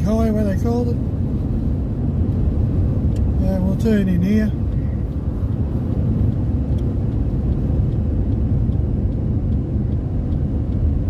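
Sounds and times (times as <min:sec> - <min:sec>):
car interior road and engine rumble: 0:00.0 - 0:11.0
faint regular ticking: 0:03.0 - 0:11.0.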